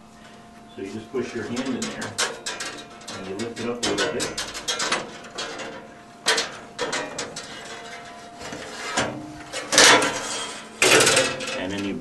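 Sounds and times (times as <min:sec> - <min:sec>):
rod scraping inside a wall: 0:06.8 - 0:11.2.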